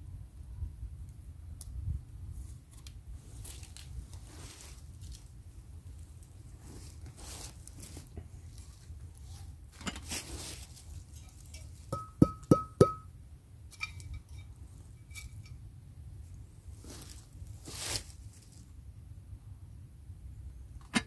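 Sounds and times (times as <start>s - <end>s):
short rustle: 3.2s - 5.3s, 6.0s - 11.9s, 16.7s - 18.6s
metal coffee pot and mug clinking: 11.2s - 13.1s, 13.7s - 15.6s.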